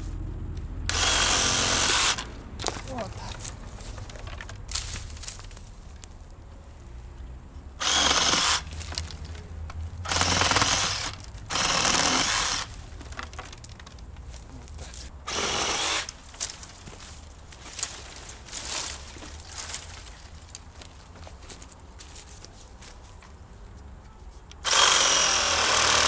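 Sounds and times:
reciprocating saw cutting branch: 0.9s - 2.3s, 7.8s - 8.8s, 10.1s - 12.8s, 15.3s - 16.5s, 24.6s - 26.0s.

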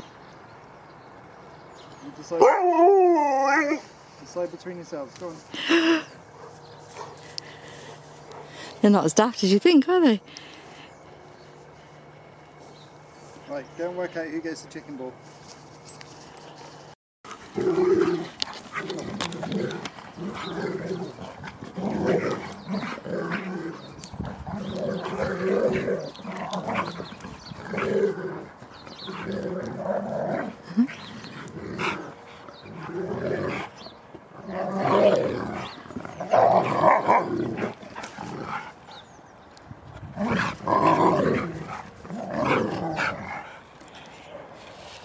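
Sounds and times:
dogs growling: 17.3s - 39.2s, 40.0s - 43.7s.

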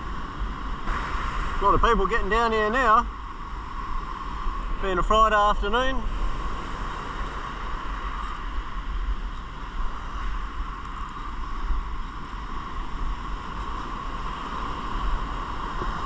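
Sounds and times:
ocean surf breaking: 0.0s - 16.0s.

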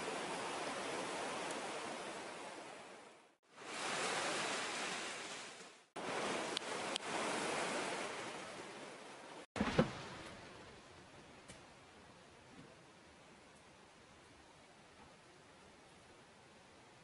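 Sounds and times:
river water rushing over rocks: 0.0s - 10.6s.

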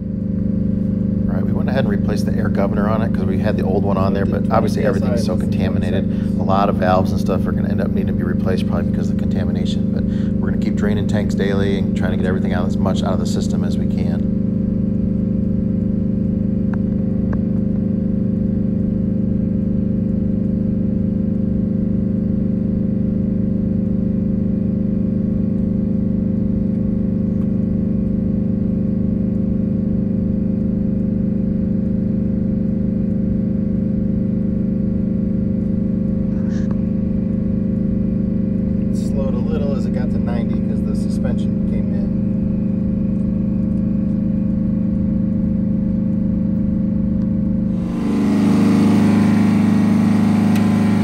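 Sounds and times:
air compressor running: 0.0s - 51.0s
bus engine idling: 0.8s - 14.2s, 47.7s - 51.0s.

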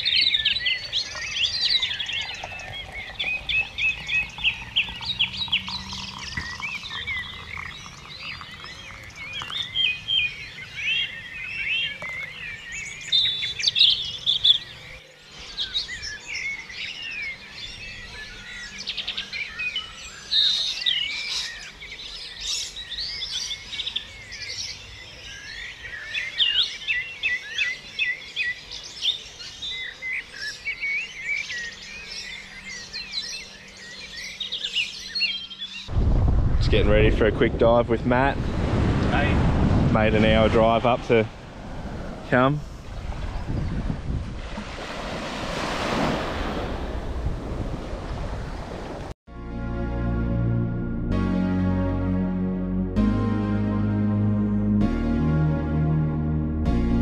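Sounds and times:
chorus of birds chirping: 0.0s - 35.9s, 40.3s - 44.0s.

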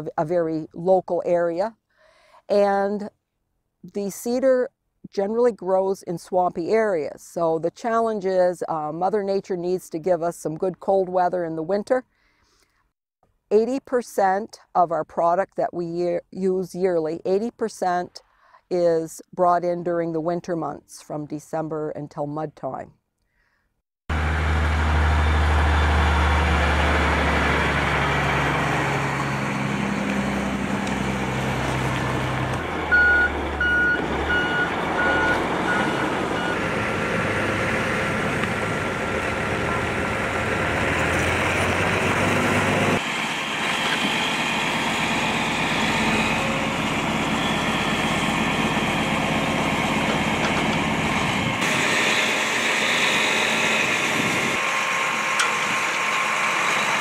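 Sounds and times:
machinery noise: 24.1s - 57.0s
truck diesel engine running: 24.1s - 57.0s
backup alarm beeping: 32.9s - 36.6s.

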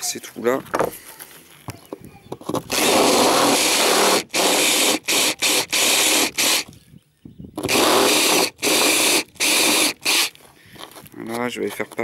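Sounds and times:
power drill boring through metal: 2.7s - 6.7s, 7.6s - 10.3s.

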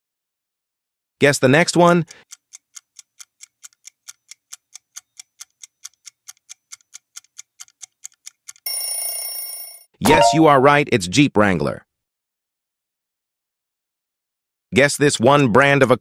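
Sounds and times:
fast clock ticking: 1.5s - 8.7s
ringing alert tone: 8.7s - 10.5s.

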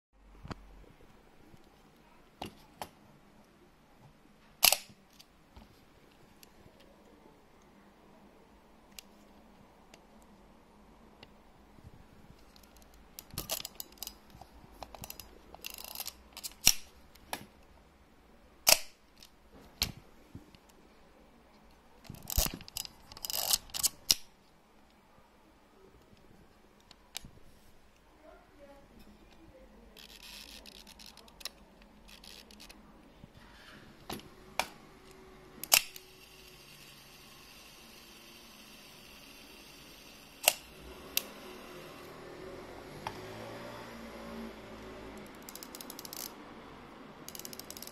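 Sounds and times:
camera mechanism clicks: 4.6s - 5.0s
sharp shutter release click: 4.6s - 5.0s, 35.6s - 36.1s
faint clockwork whir: 34.2s - 47.9s.

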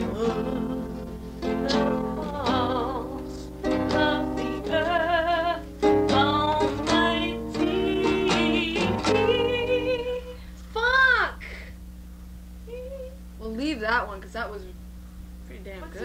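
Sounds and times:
plucked string music: 0.0s - 10.2s.

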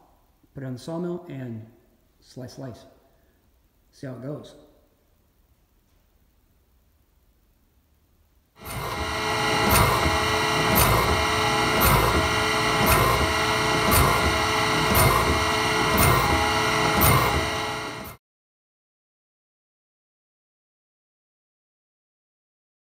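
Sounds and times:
band sawmill whining: 8.6s - 18.2s.

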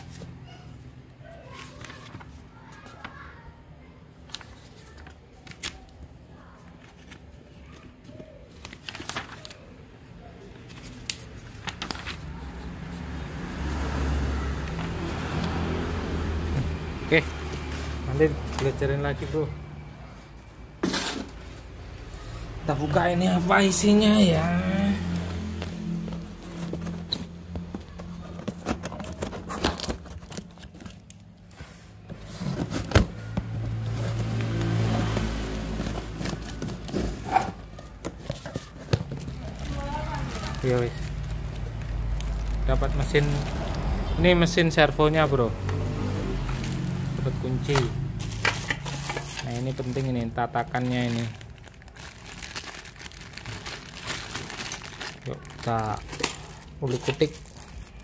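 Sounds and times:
paper pages rustling: 1.4s - 3.2s, 4.2s - 13.9s, 25.0s - 43.9s, 46.4s - 58.0s
cardboard box rustling and knocking: 26.1s - 31.0s, 32.1s - 39.7s.

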